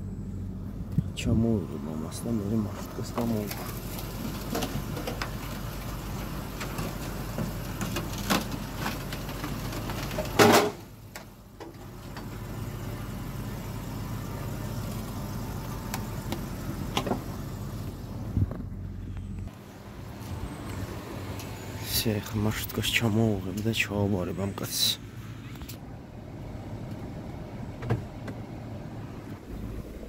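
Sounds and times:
car engine running: 0.0s - 30.0s
loud clunk: 10.3s - 10.8s.

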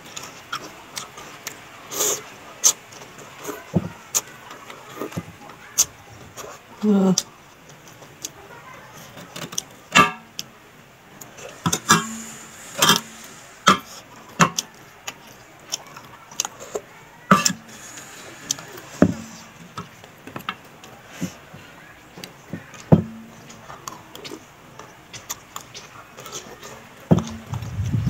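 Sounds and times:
metal spoon scraping in dish: 11.4s - 14.6s.

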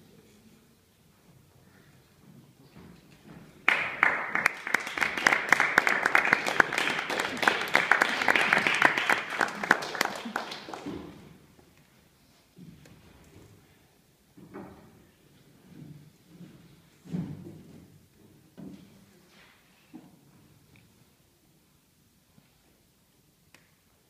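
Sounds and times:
audience applauding: 3.7s - 11.2s.

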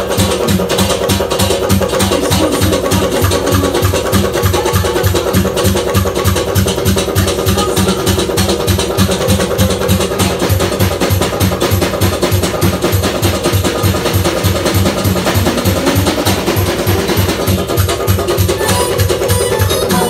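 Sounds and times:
frame drum beat: 0.0s - 20.0s
snare drum beat: 0.0s - 20.0s
accordion melody: 2.0s - 5.4s, 7.3s - 8.6s, 18.4s - 20.0s.

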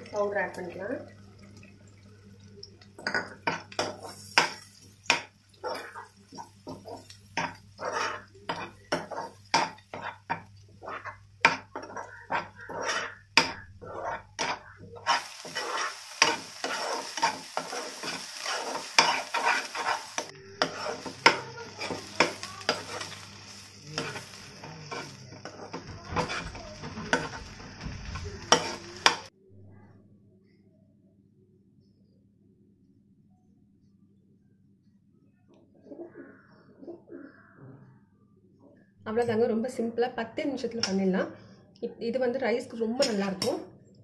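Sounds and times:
oil sizzling: 0.0s - 29.3s
spatula scraping pan: 3.4s - 29.3s.

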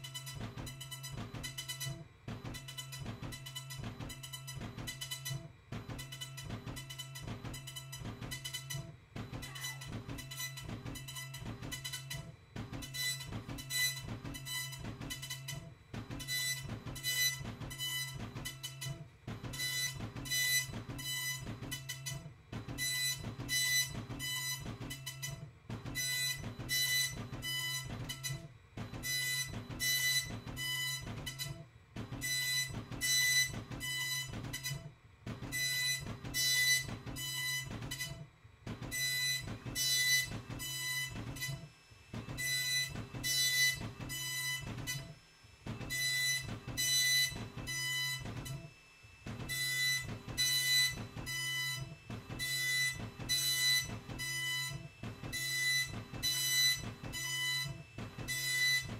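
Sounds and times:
dot-matrix printer printing: 0.0s - 58.9s.

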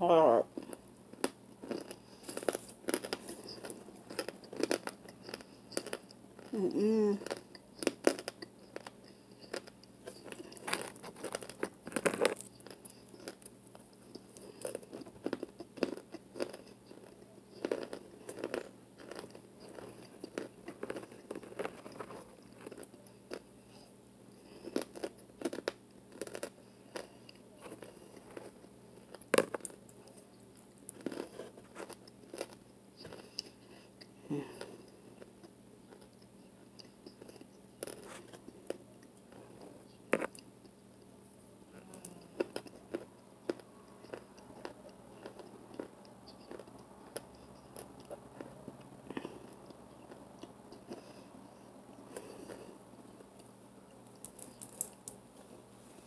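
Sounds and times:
crunchy chewing: 0.5s - 41.1s, 41.7s - 56.0s.

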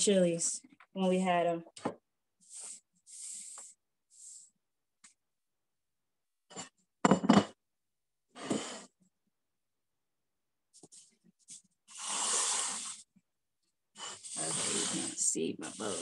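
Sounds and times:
soft breathy hisses: 2.4s - 4.6s, 11.9s - 13.1s, 14.0s - 16.0s
dishes knocking: 7.0s - 7.6s.

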